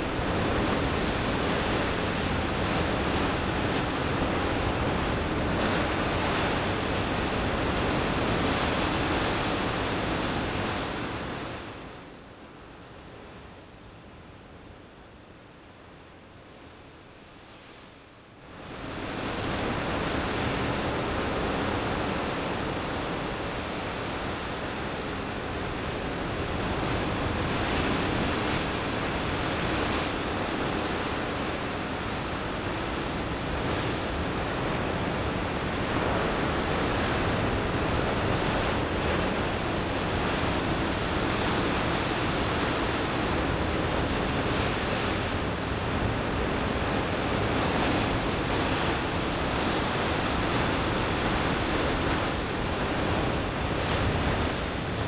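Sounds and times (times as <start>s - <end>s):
ocean waves breaking: 18.7s - 55.0s.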